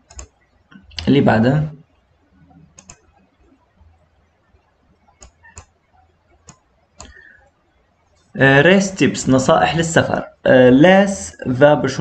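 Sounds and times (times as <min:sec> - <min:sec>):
computer mouse clicking: 0:00.0 - 0:01.1, 0:02.5 - 0:03.4, 0:05.0 - 0:07.2.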